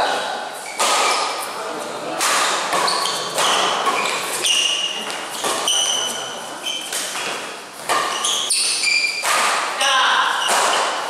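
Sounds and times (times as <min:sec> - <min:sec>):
shoes squeaking on court: 0:00.6 - 0:01.4, 0:02.7 - 0:09.3
rackets striking shuttlecock: 0:00.7 - 0:01.4, 0:02.2 - 0:06.1, 0:06.8 - 0:09.8, 0:10.4 - 0:11.0.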